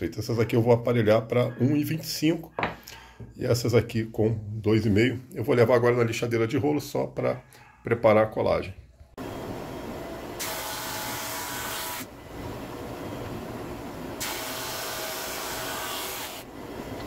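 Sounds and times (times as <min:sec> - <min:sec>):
drum sander running: 0:09.2 - 0:17.0.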